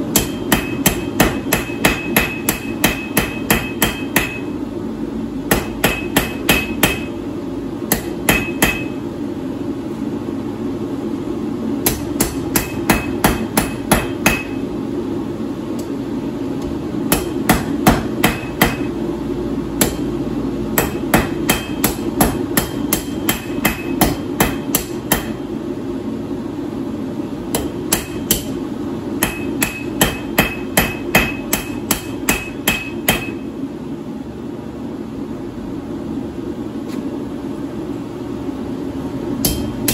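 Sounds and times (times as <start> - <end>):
hammer striking steel on anvil: 0.0 - 4.6, 5.5 - 7.2, 7.9 - 9.0, 11.8 - 14.6, 17.1 - 19.0, 19.8 - 20.1, 20.7 - 25.4, 27.5 - 28.6, 29.2 - 33.4, 39.4 - 39.9
steady hum: 0.0 - 39.9.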